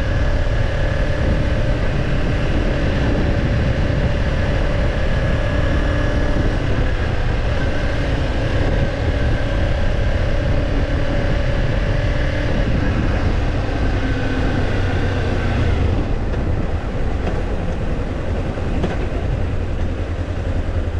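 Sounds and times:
motorcycle engine running: 0.0s - 20.9s.

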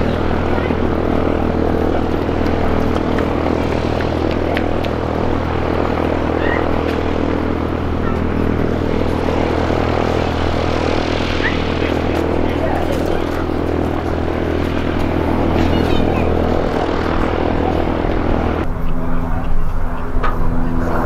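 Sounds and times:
jet engines idling: 0.0s - 21.0s.

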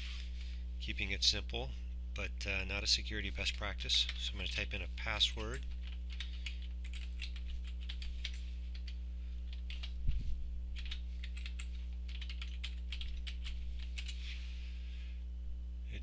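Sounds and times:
low electrical hum: 0.0s - 16.0s
keyboard keys clicking: 5.4s - 10.0s, 10.8s - 14.2s.

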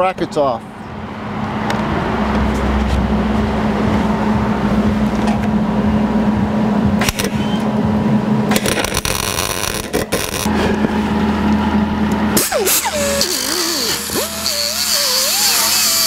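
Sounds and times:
steady low hum: 0.6s - 16.0s
welder arc crackling: 8.5s - 10.5s.

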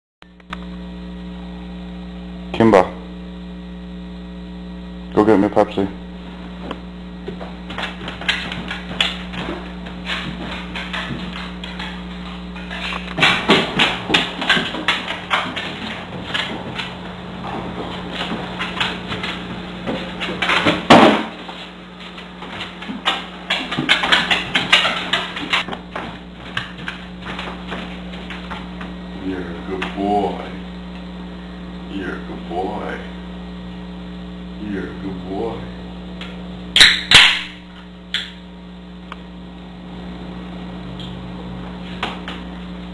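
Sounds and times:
electrical hum: 0.2s - 42.9s
small click: 0.4s - 0.8s
dog claws clicking on hard floor: 7.7s - 21.3s, 22.1s - 28.7s.

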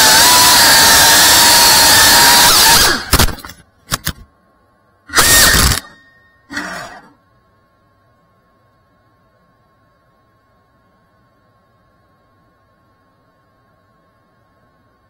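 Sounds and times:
drone motors whining: 0.0s - 3.3s, 5.1s - 7.2s.

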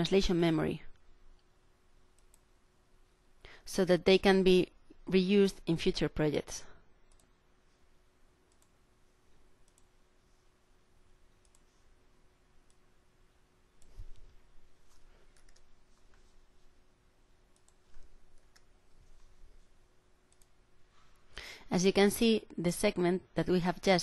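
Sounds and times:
computer mouse clicks: 2.1s - 2.5s, 7.1s - 7.4s, 8.5s - 8.8s, 9.6s - 10.0s, 11.4s - 11.9s, 13.8s - 16.0s, 17.5s - 19.3s, 20.3s - 20.6s.

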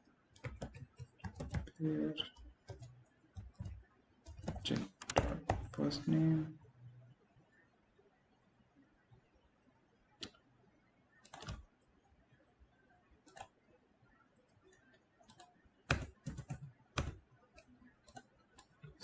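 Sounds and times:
computer keyboard keystrokes: 0.4s - 5.9s, 11.2s - 11.7s, 13.2s - 13.6s, 14.7s - 19.0s.

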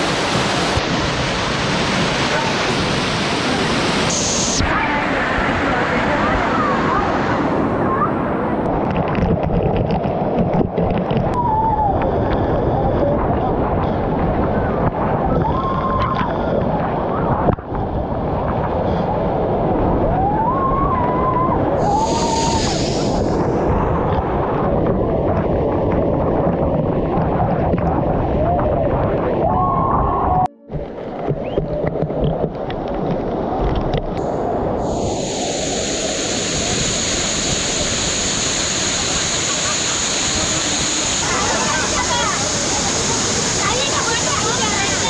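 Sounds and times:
waterfall roaring: 0.0s - 10.0s, 19.8s - 26.6s, 28.9s - 45.0s.

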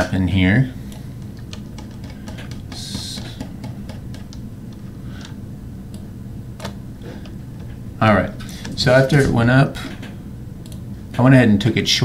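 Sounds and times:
faint room hum: 0.0s - 12.0s
computer mouse clicks: 0.9s - 7.7s, 10.6s - 10.8s.

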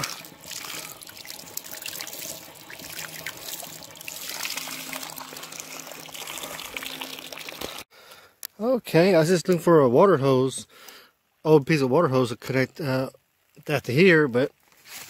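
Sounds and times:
water pouring and splashing: 0.0s - 7.9s.

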